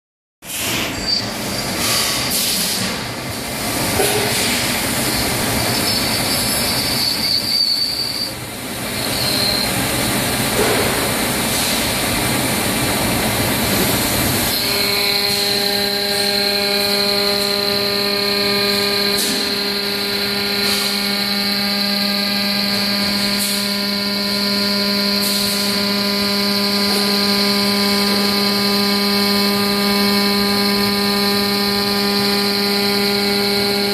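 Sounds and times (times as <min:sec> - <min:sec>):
metal lathe machining: 0:00.6 - 0:33.9.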